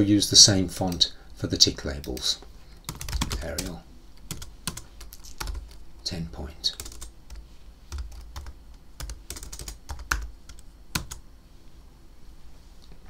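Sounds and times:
computer keyboard clicks: 0:02.9 - 0:05.8, 0:08.0 - 0:11.2.

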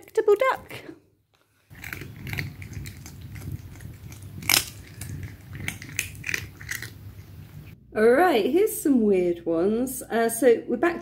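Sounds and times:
cats crunching dry treats: 0:01.7 - 0:07.3.

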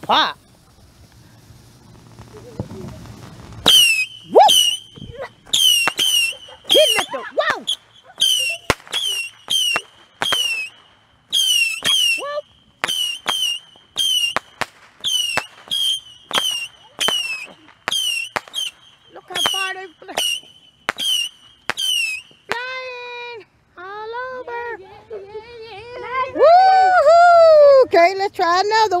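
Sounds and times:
firework whistling shots: 0:00.0 - 0:22.8.

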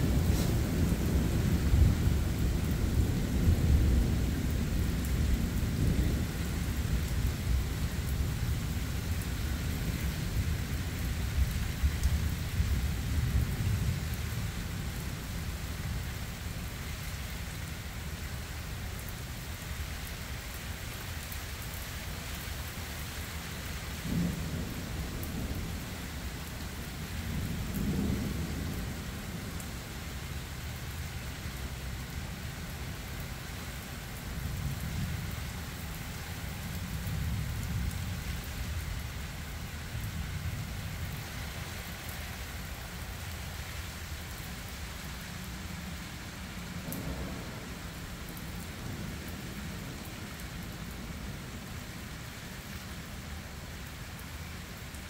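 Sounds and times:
thunder rumbling: 0:00.0 - 0:16.6, 0:24.0 - 0:29.8, 0:45.8 - 0:52.0
heavy rain: 0:00.0 - 0:55.0.

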